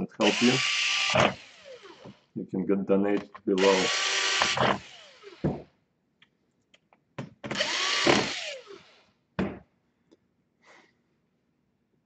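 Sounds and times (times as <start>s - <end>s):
drill motor whine: 0.2s - 2.2s, 3.6s - 5.6s, 7.5s - 9.0s.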